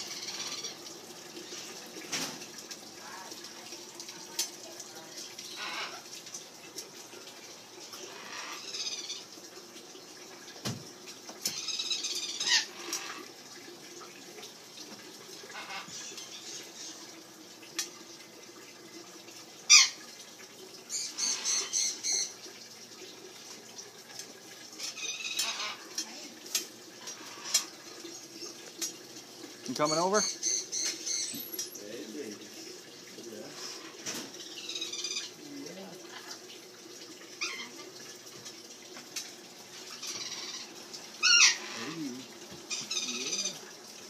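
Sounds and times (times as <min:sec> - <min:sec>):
parrots squawking: 0:00.0 - 0:00.8, 0:05.5 - 0:06.0, 0:08.1 - 0:09.3, 0:11.5 - 0:13.2, 0:15.5 - 0:17.0, 0:19.7 - 0:20.0, 0:20.9 - 0:22.4, 0:24.8 - 0:26.0, 0:29.7 - 0:31.5, 0:33.5 - 0:35.4, 0:37.4 - 0:37.9, 0:39.9 - 0:42.1, 0:42.7 - 0:43.7.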